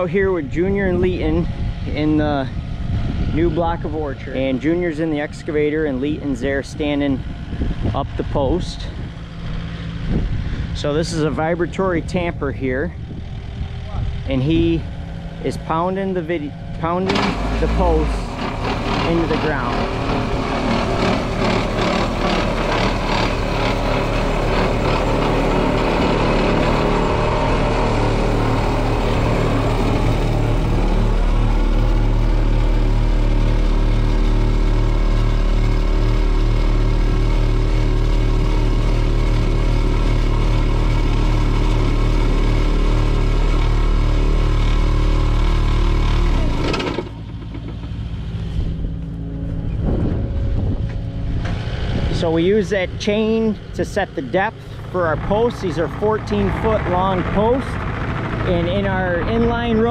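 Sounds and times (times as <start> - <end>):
excavator engine running hard: 0.0 - 59.9
fast pulsing rattle: 16.9 - 32.4, 54.5 - 59.9.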